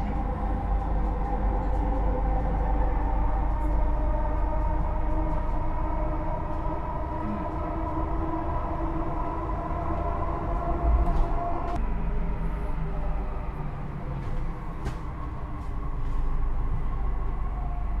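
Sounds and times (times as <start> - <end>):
train wheels rumbling on rail: 0.0 - 11.8
steady whine: 0.0 - 18.0.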